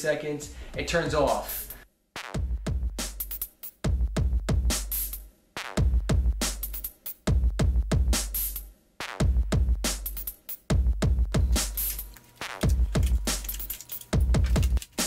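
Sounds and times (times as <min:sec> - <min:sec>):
electronic music with drum machine: 0:00.8 - 0:15.0.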